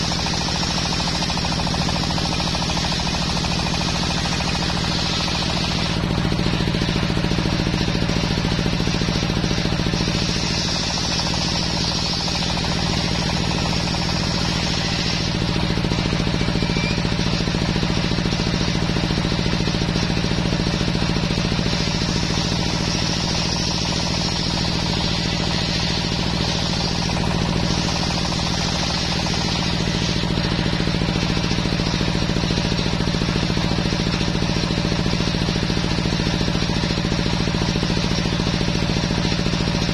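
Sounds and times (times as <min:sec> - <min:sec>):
table saw ripping wood: 0:08.2 - 0:17.6, 0:21.5 - 0:32.9.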